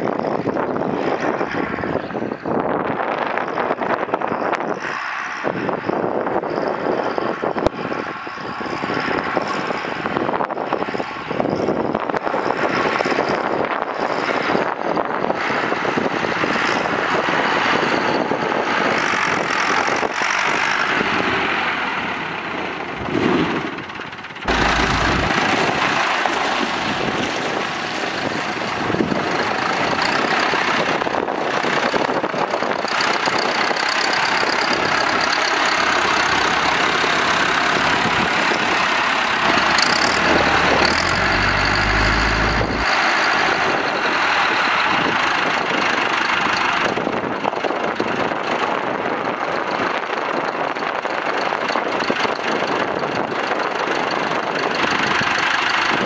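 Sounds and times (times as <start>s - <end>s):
tractor diesel engine running: 16.4s - 56.0s.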